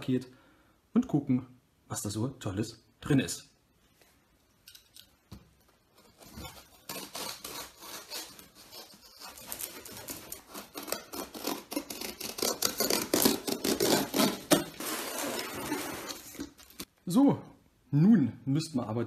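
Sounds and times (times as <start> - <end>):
cardboard box being torn open: 6.2 - 16.9
plastic wrapping crackling: 8.5 - 16.9.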